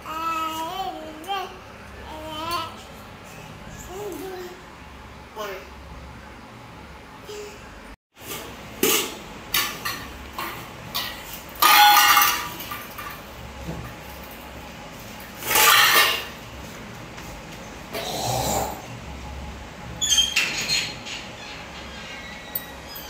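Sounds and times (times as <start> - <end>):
steel bowls clattering: 8.4 - 13.3, 15.4 - 16.4.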